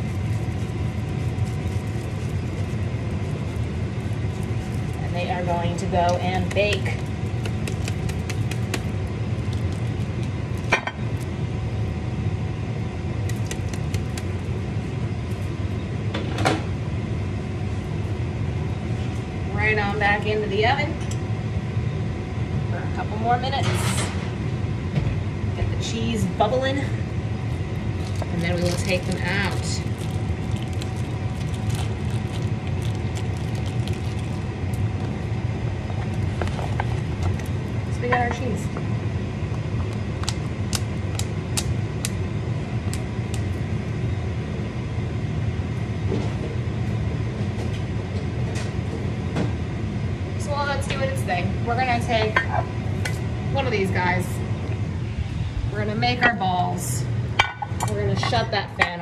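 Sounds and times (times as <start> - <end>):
plastic bag crinkling: 0.0 - 11.3, 13.2 - 14.5, 27.8 - 35.2, 35.9 - 38.0
kitchen fan humming: 0.0 - 59.0.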